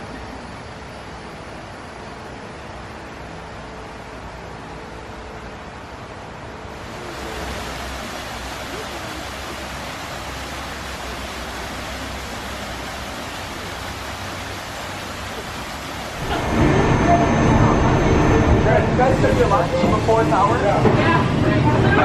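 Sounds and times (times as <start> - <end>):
waterfall splashing over rocks: 6.7 - 16.6.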